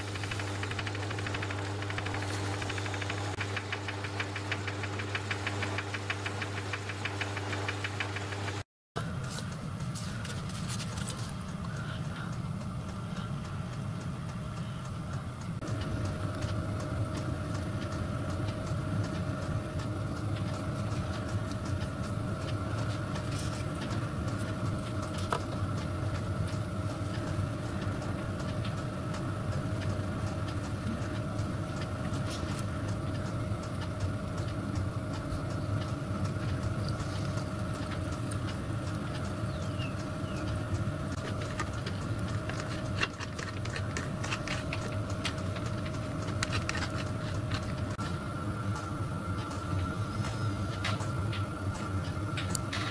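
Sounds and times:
electric motor humming: 0.0s - 8.6s
steady whine: 0.0s - 52.9s.

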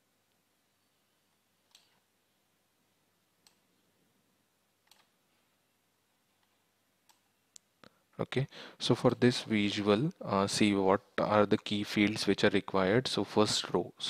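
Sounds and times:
faint computer mouse clicks: 4.8s - 5.2s.

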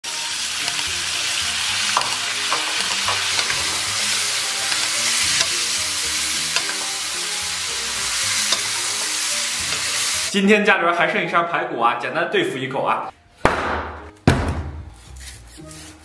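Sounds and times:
ribs sizzling in bubbling sauce: 0.0s - 10.3s.

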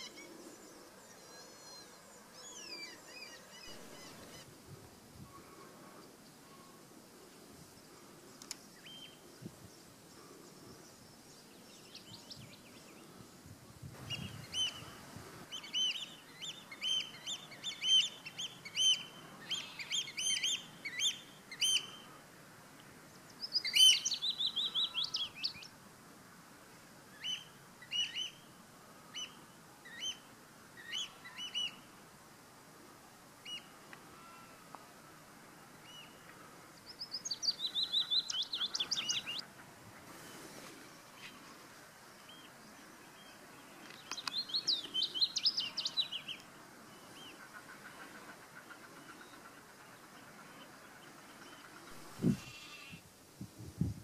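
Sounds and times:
warbler singing: 23.3s - 25.7s, 36.8s - 39.4s, 42.3s - 47.4s.

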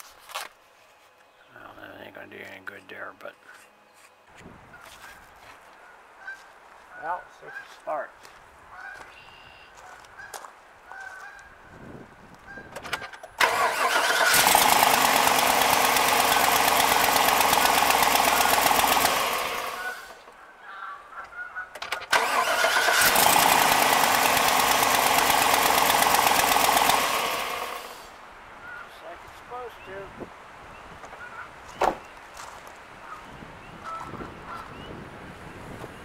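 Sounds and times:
truck engine starting and running: 12.8s - 20.4s, 21.8s - 28.2s.

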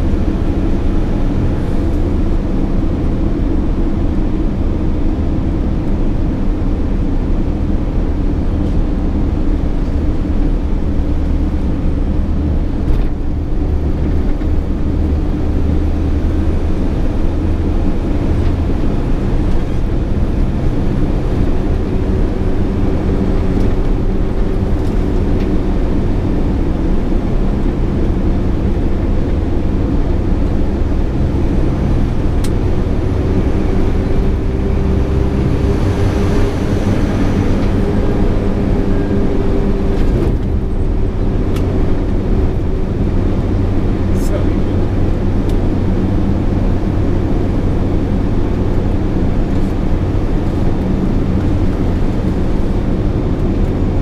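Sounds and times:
road and tyre noise: 0.0s - 54.0s
truck diesel engine running: 0.0s - 54.0s.

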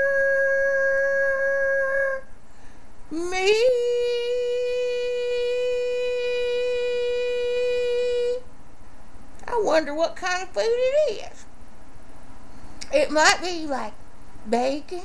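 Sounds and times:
person singing unaccompanied: 0.0s - 2.2s, 3.1s - 8.5s.

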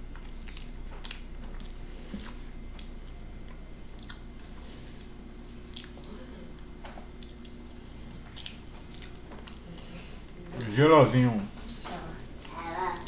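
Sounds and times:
faint low hum: 0.0s - 13.0s
wet chewing and squishing: 0.2s - 9.9s.

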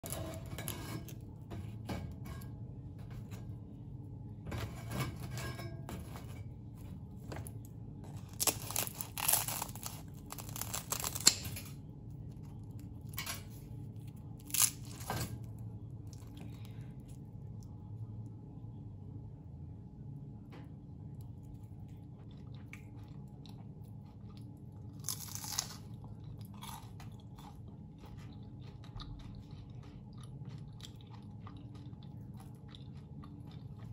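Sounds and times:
scissors cutting crunchy fried food: 8.2s - 11.8s, 25.0s - 25.8s.

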